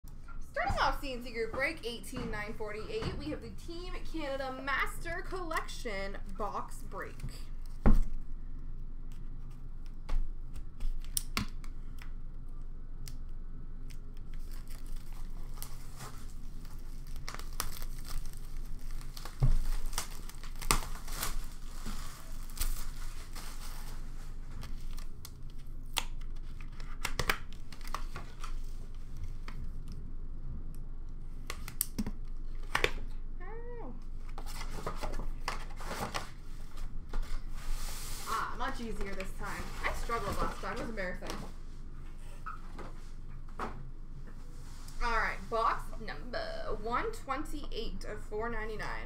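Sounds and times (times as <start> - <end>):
plastic wrapping crinkling and tearing: 13.0 - 30.0.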